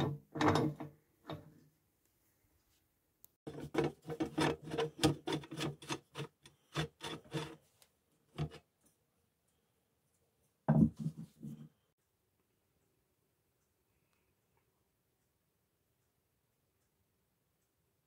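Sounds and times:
screwdriver turning a screw: 0:03.5 - 0:07.6.

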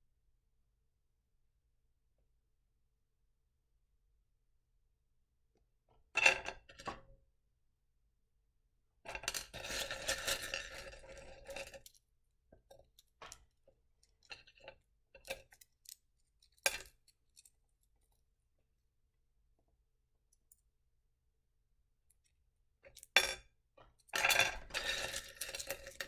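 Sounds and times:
stones clattering in a dish: 0:09.1 - 0:13.5, 0:16.6 - 0:17.5, 0:22.9 - 0:26.0.

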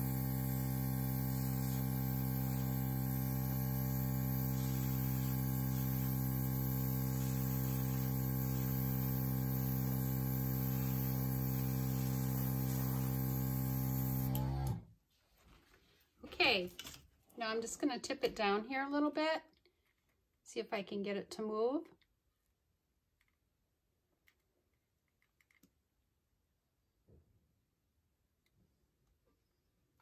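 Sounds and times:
air hissing from airbrush: 0:00.0 - 0:14.3
air compressor humming: 0:00.0 - 0:14.8.

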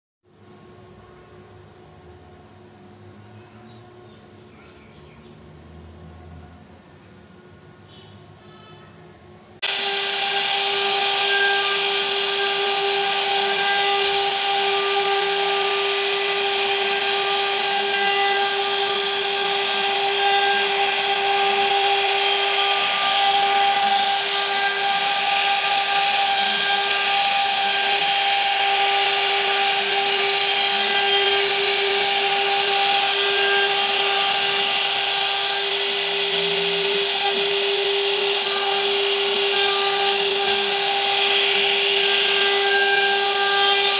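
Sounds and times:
router spindle whine: 0:09.6 - 0:43.9.

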